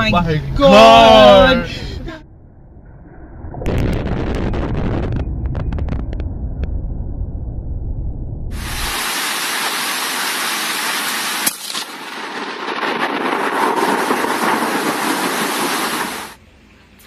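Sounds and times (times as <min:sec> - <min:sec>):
heavy rain hissing: 0:08.5 - 0:16.4
sharp crack: 0:08.6 - 0:16.4.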